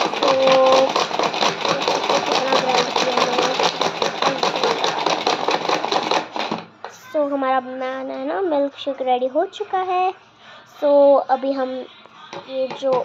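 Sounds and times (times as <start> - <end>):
hand chopper rattling whir: 0.0 - 6.6.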